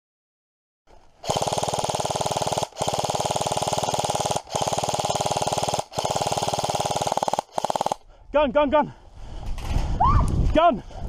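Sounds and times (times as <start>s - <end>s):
airsoft rifle automatic fire: 1.2s - 8.0s.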